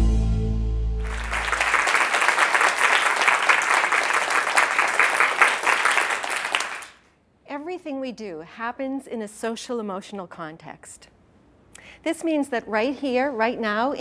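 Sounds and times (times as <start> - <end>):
audience applauding: 1.0 - 7.0.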